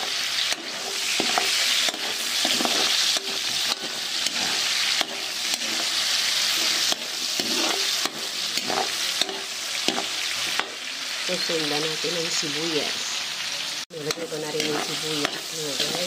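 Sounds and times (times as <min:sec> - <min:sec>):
spatula scraping pan: 0:00.0 - 0:10.8, 0:14.0 - 0:16.0
meat sizzling in hot oil: 0:00.0 - 0:16.0.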